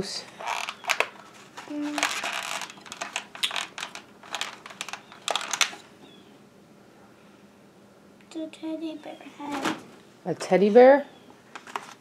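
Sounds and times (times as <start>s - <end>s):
packaging crinkling and rustling: 0.3s - 5.9s, 11.5s - 12.0s.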